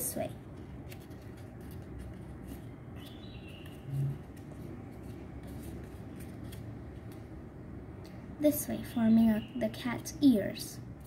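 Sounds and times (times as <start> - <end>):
paper rustling and crinkling: 0.5 - 7.2.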